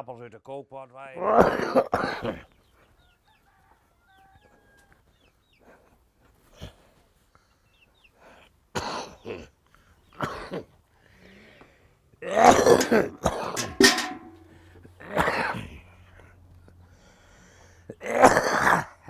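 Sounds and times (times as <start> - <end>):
throat clearing: 1.2 - 2.5, 8.8 - 9.5, 10.2 - 10.7, 15.0 - 15.8, 18.0 - 19.0
person coughing: 1.3 - 2.4, 12.3 - 13.7, 15.0 - 15.6.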